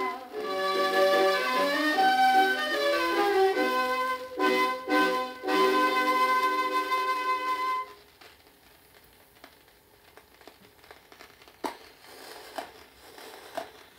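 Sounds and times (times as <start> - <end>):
orchestra with flute and strings: 0.0 - 7.9
vinyl surface crackle: 0.0 - 13.9.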